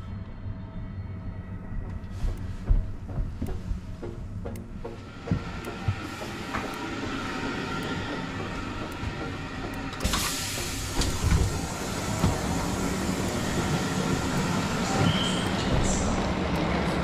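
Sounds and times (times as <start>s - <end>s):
station noise: 0.8s - 17.0s
train door opening hiss: 5.4s - 16.2s.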